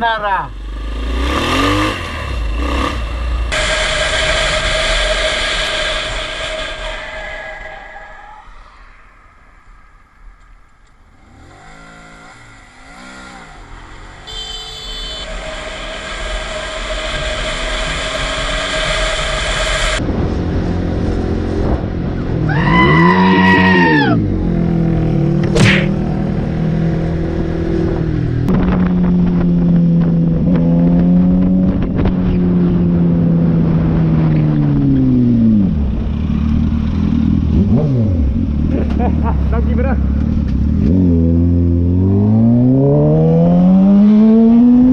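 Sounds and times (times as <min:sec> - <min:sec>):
motorcycle engine revving: 0:00.5 - 0:07.0, 0:11.0 - 0:44.9
wind noise: 0:15.3 - 0:23.1, 0:26.7 - 0:36.2.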